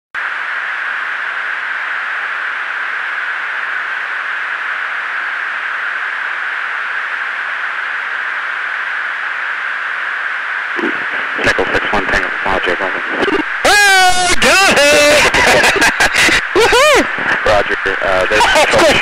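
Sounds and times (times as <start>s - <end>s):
static hiss: 0.2s - 19.0s.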